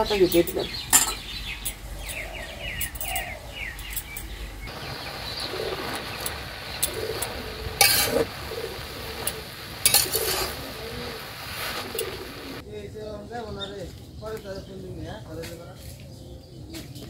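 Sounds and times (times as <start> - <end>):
small birds chirping: 0.0 - 17.0
pigeons cooing: 1.2 - 12.6.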